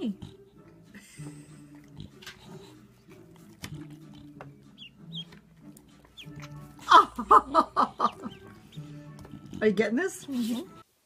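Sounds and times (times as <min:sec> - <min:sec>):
soft music: 0:00.0 - 0:11.0
duckling peeping: 0:03.9 - 0:06.8, 0:08.0 - 0:09.1.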